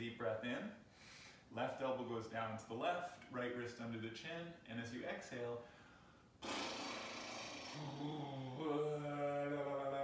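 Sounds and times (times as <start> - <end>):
man sighing: 6.4 - 9.1.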